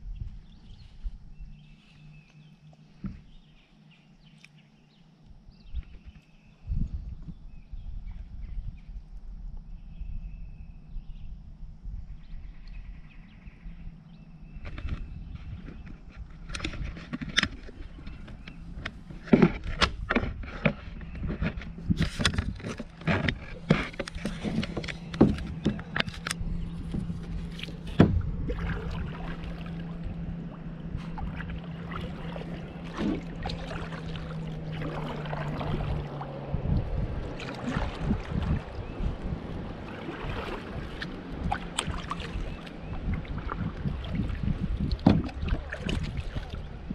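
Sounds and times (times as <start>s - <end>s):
steady low hum: 0.0s - 46.9s
water splashing against kayak hull: 14.5s - 46.9s.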